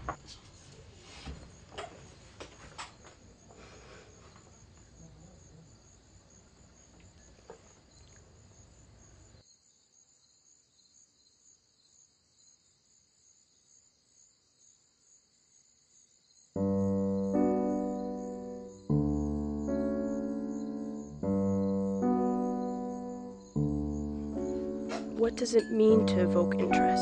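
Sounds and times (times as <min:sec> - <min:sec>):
crickets chirping: 0:00.0 - 0:27.0
piano music: 0:16.6 - 0:27.0.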